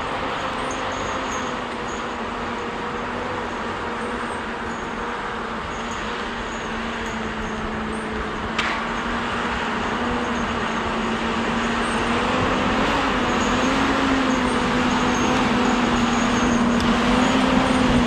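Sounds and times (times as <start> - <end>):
diesel engine droning: 0.0 - 18.0
sharp click: 8.6 - 8.9.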